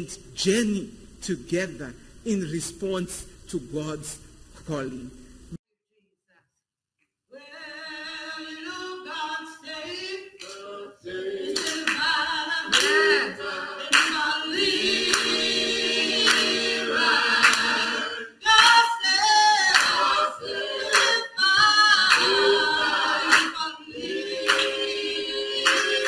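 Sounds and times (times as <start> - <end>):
group singing a cappella: 7.3 - 26.0
hand claps: 10.4 - 10.7, 11.5 - 12.1, 12.7 - 13.2, 13.8 - 14.2, 15.1 - 15.4, 16.2 - 16.6, 17.4 - 17.8, 19.6 - 20.1, 20.9 - 22.4, 23.3 - 23.6, 24.4 - 24.8, 25.6 - 26.0.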